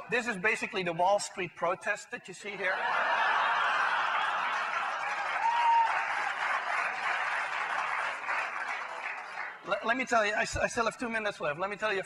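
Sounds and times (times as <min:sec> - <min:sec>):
audience laughing: 0:02.6 - 0:05.3
audience clapping: 0:03.6 - 0:09.8.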